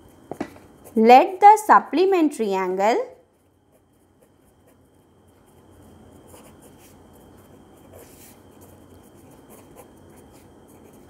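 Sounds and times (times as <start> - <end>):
low steady hum: 0.0 - 11.0
pen scratching on paper: 0.8 - 1.0, 3.4 - 11.0.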